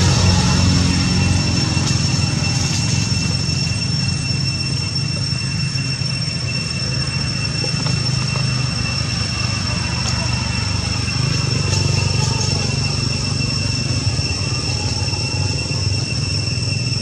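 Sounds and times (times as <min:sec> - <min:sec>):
low mechanical motor drone: 0:00.0 - 0:17.0
thin high whine: 0:00.0 - 0:17.0.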